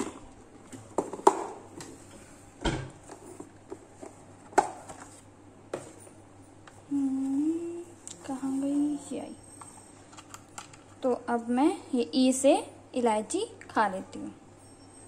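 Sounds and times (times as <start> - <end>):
person humming: 6.9 - 8.0.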